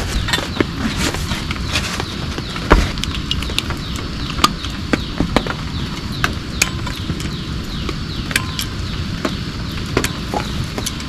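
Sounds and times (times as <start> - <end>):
rain hiss: 0.0 - 11.0.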